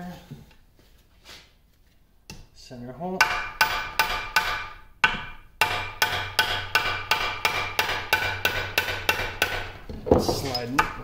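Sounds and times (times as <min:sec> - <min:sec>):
hammer striking steel punch: 0:03.2 - 0:09.7.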